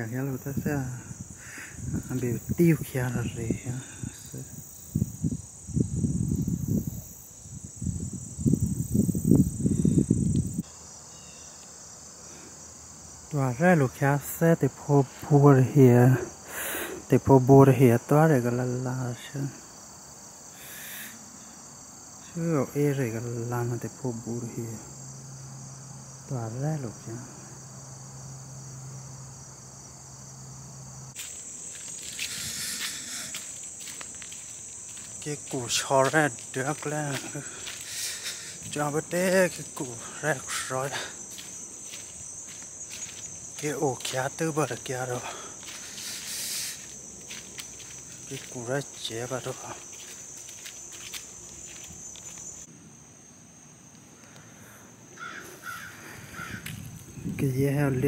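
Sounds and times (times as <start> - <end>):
high-pitched insect drone: 0.0 - 58.0
wind buffeting microphone: 0.5 - 10.6, 56.2 - 58.0.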